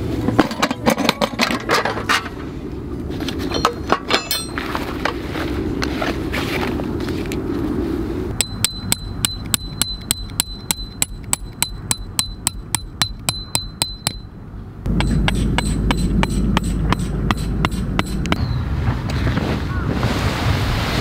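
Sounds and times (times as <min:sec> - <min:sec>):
hammer striking metal tent pegs: 0:00.2 - 0:02.4, 0:03.5 - 0:04.7, 0:08.4 - 0:14.3, 0:14.9 - 0:18.4
wind buffeting microphone: 0:14.8 - 0:21.0.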